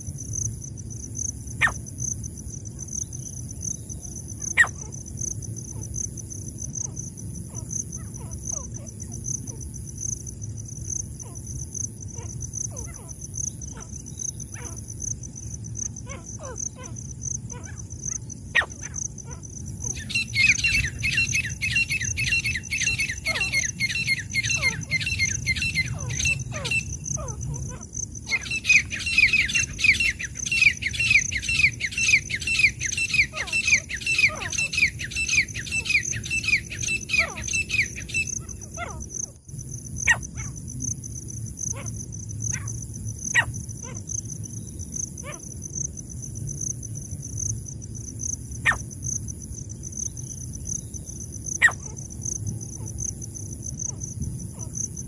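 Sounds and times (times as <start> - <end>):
high insect whine: 0.0 - 55.0
francolin calling: 3.2 - 5.9, 15.8 - 39.4, 48.6 - 48.9, 50.1 - 52.2.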